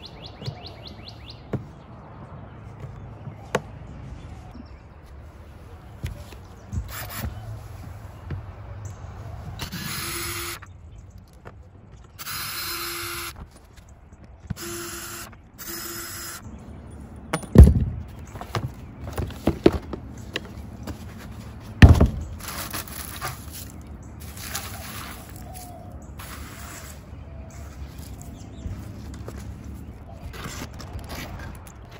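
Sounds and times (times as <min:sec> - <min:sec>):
cordless drill running: 0:09.6 - 0:10.6, 0:12.2 - 0:13.4, 0:14.6 - 0:16.4
loud thumps: 0:17.3 - 0:20.0, 0:21.8 - 0:22.5.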